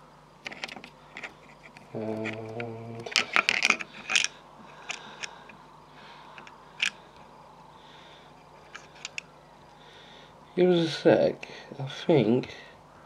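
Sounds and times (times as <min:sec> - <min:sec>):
small clicks and scratches: 0:00.4 - 0:05.6, 0:06.3 - 0:07.3, 0:08.3 - 0:09.3.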